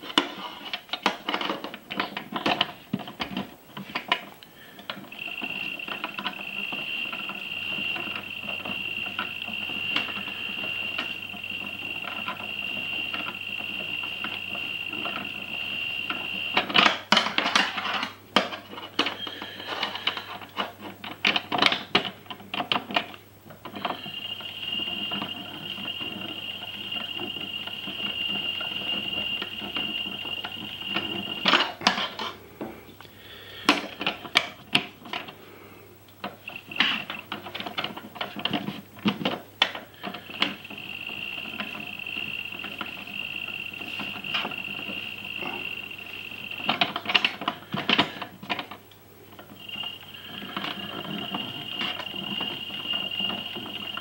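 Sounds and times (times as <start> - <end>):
toy washing machine motor whine: 0.0 - 54.0
clicks and clatter: 36.2 - 54.0.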